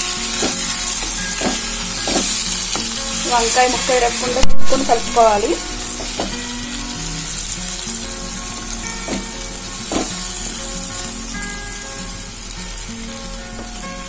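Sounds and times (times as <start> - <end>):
spatula stirring: 0.0 - 6.4, 7.2 - 14.0
gravy sizzling in a pan: 0.0 - 14.0.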